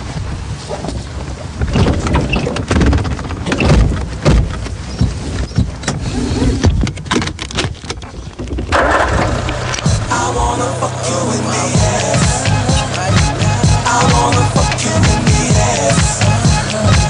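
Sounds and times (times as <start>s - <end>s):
knocks thumps and rattles: 0.2s - 10.0s
car running: 7.8s - 17.0s.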